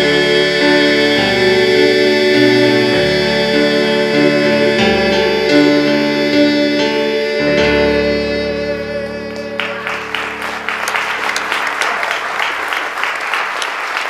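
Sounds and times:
piano and electric bass chord: 0.0s - 12.5s
applause: 9.6s - 14.0s.

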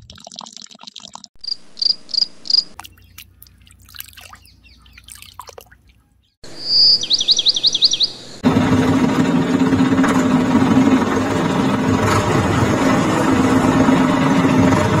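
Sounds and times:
engine idling: 8.4s - 15.0s.

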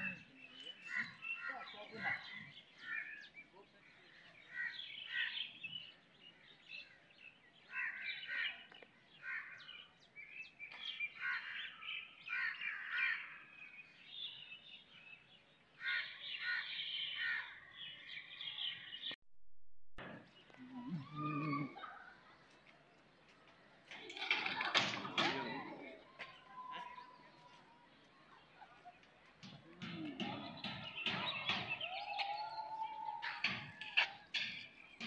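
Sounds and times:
birds harsh calls: 0.0s - 19.2s, 28.4s - 35.0s.

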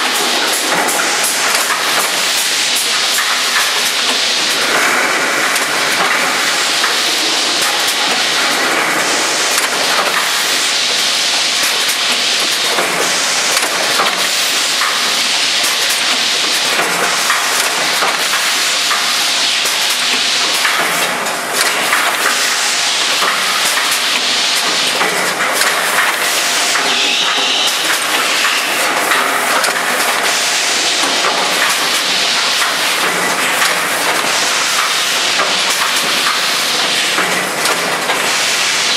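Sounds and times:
filling machine hissing: 0.0s - 38.9s.

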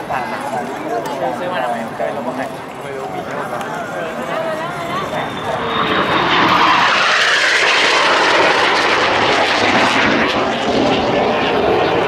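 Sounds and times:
fighter jets flying past: 1.5s - 12.0s.

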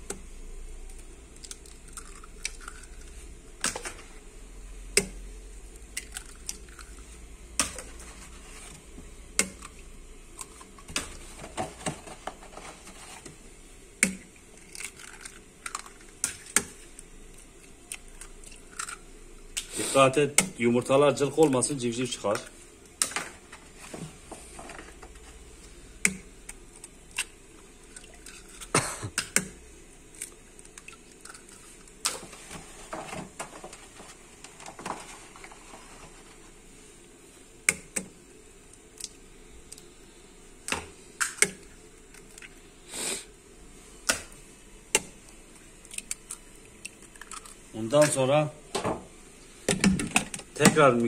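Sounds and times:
eggs cracking into a metal bowl: 0.8s - 4.0s, 4.9s - 7.0s, 7.6s - 8.0s, 9.3s - 12.4s, 14.0s - 19.7s, 26.0s - 32.2s, 40.6s - 42.6s, 44.0s - 48.9s.

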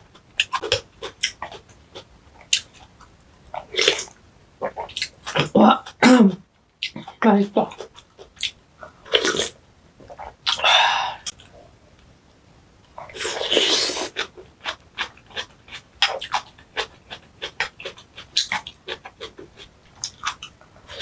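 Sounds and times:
wet chewing clicks: 14.1s - 20.6s.

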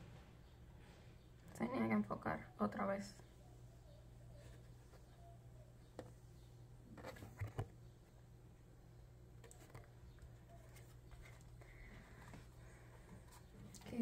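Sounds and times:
cards tapping and rustling: 6.9s - 8.0s.

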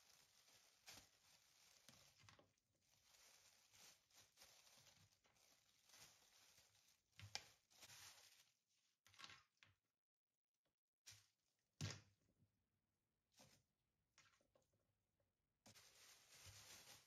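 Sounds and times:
plastic bag crinkling: 0.0s - 8.5s, 15.7s - 17.0s.

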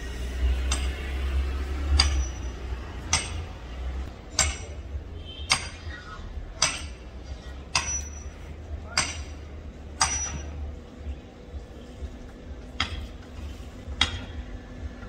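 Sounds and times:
sledgehammer clanging on metal stake: 1.9s - 6.0s, 6.6s - 7.1s, 7.7s - 10.8s, 13.9s - 14.4s.

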